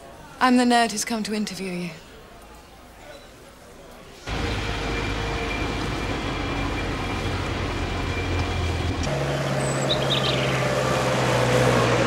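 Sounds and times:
old truck engine running: 4.3 - 12.0.

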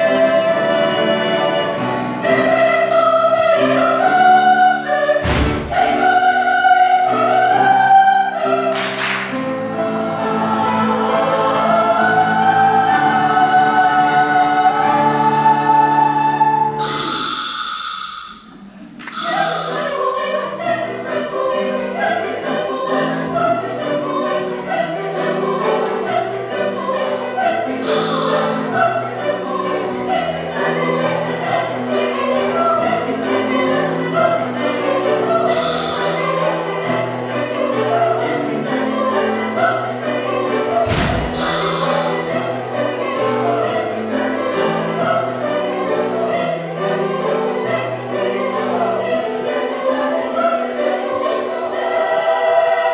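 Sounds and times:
choir singing in harmony: 0.0 - 52.9
piano accompaniment: 0.0 - 52.9
sharp thump: 5.2 - 6.0, 40.8 - 42.0.

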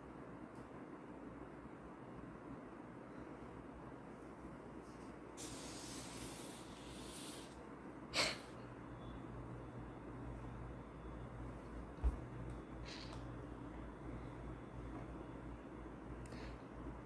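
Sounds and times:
sharp sniff: 5.4 - 7.6.

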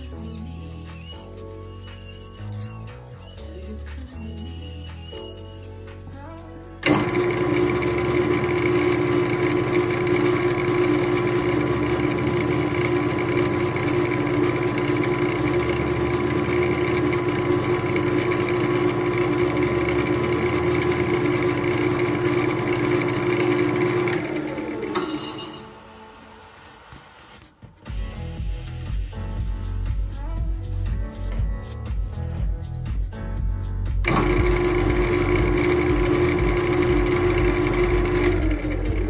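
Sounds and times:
power tool motor running: 6.8 - 26.2, 34.1 - 39.0.

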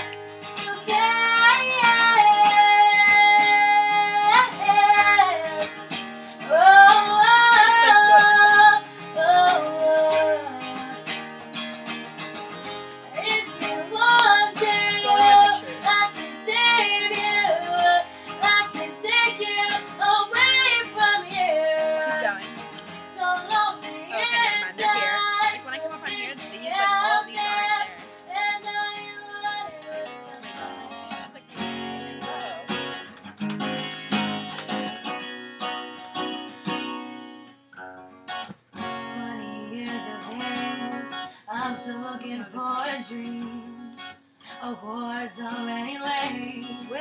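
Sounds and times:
woman singing pop ballad: 0.0 - 11.2, 13.1 - 22.3, 22.9 - 31.3, 38.9 - 47.0
acoustic guitar: 0.0 - 47.0.

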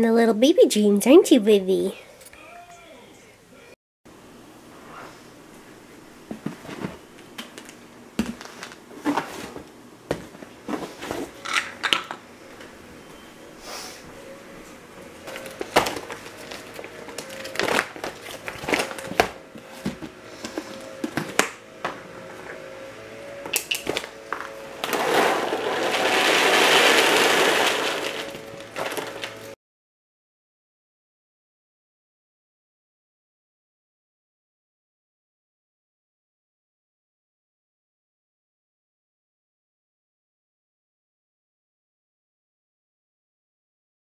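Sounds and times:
kibble pouring into container: 24.8 - 29.3
plastic bag crinkling: 24.9 - 29.4.

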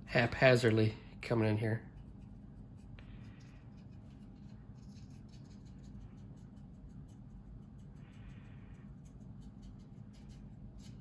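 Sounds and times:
low steady hum: 0.0 - 11.0
brush scratching on plastic: 1.8 - 8.0.

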